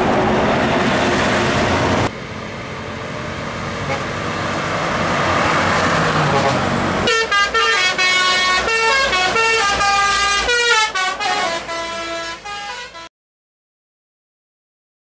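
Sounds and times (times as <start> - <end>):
musical bus air horn: 6.2 - 13.1.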